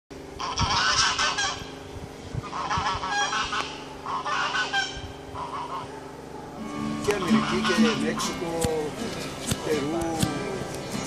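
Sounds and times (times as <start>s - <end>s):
steady low hum: 0.1s - 11.0s
geese honking: 0.3s - 1.8s, 2.4s - 11.0s.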